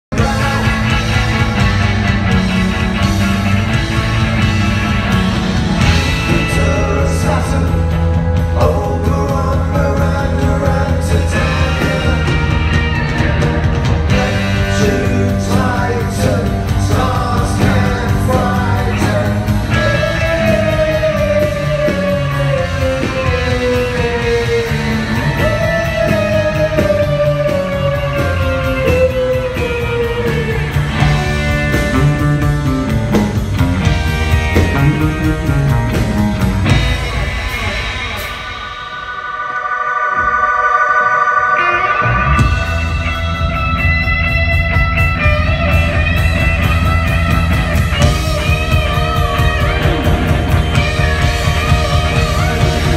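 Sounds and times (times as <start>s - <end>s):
live rock band playing: 0.1s - 52.9s
person singing: 6.1s - 31.1s
falling pitch slides: 34.6s - 43.9s.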